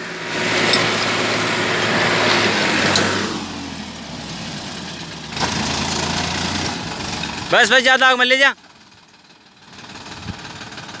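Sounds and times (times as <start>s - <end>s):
diesel tractor engine revving: 0.0s - 11.0s.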